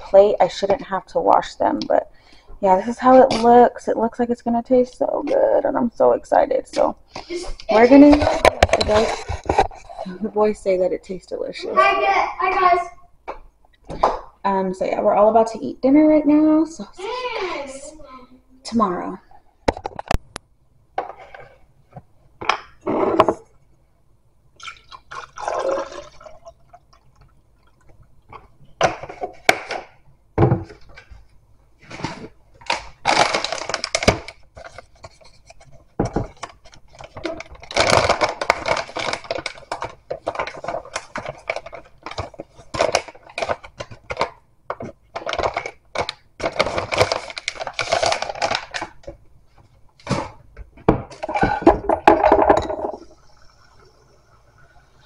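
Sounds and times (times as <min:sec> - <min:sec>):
liquid pouring into a tumbler: 0:24.6 - 0:27.8
plastic pouch rustling: 0:36.6 - 0:44.4, 0:45.1 - 0:49.1.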